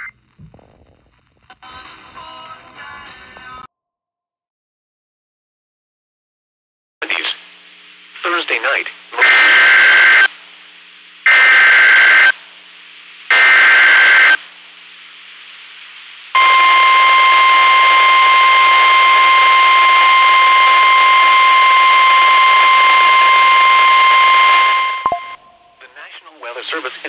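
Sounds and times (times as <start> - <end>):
radio hiss: 7.0 - 24.8, 25.8 - 27.0
steady alarm tone: 16.4 - 25.8.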